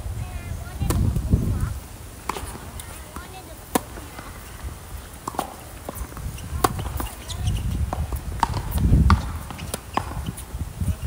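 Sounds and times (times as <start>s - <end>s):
racket hitting tennis ball: 0.7s - 1.2s, 2.2s - 10.5s
tennis ball bouncing: 0.7s - 1.2s, 2.2s - 10.5s.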